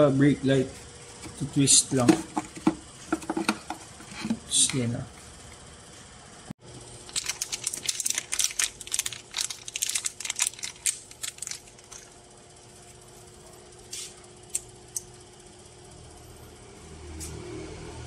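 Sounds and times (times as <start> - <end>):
plastic packaging crinkling: 7.0 - 12.1.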